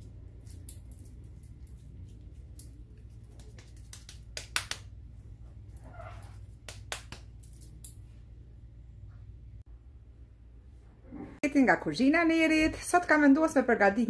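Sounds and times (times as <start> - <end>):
hands slapping minced meat: 3.2 - 4.9.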